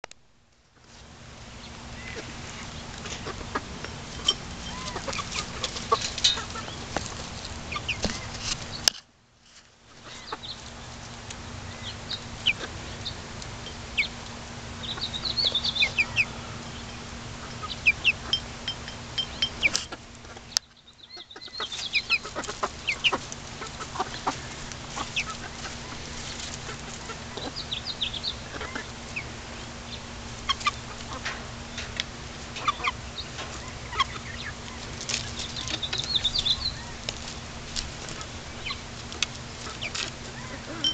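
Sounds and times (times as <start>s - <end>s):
hens clucking: 1.6s - 8.9s, 10.0s - 40.9s
short high-pitched hen calls: 4.6s - 5.6s.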